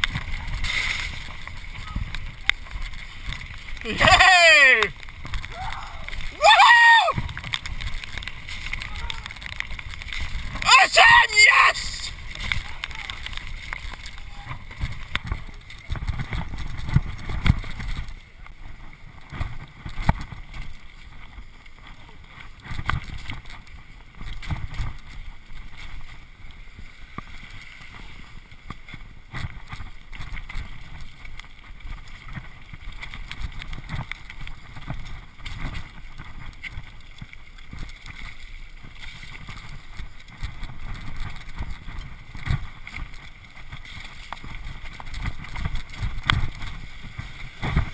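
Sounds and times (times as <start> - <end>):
splashes through puddles: 0.0 - 18.8
wind on microphone: 27.5 - 47.9.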